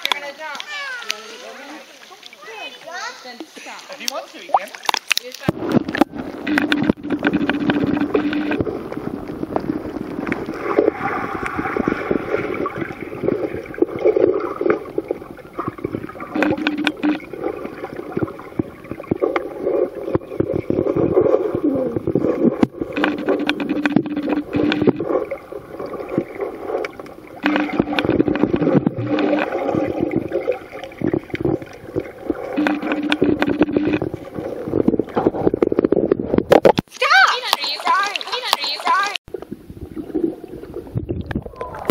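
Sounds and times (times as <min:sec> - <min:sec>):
small underwater clicks and knocks: 0:00.0 - 0:01.2, 0:02.1 - 0:11.6, 0:12.7 - 0:21.3, 0:22.0 - 0:39.6
muffled underwater stream gurgling: 0:04.5 - 0:36.8, 0:37.5 - 0:41.9
low steady tone: 0:27.3 - 0:34.5.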